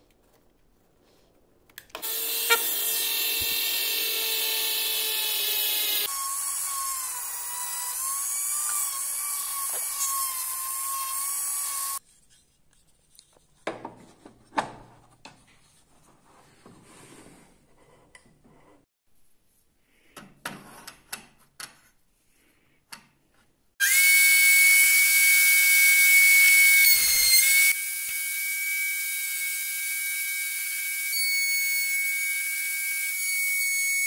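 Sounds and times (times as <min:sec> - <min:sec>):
rotary tool sanding wood: 0:02.0 - 0:12.4.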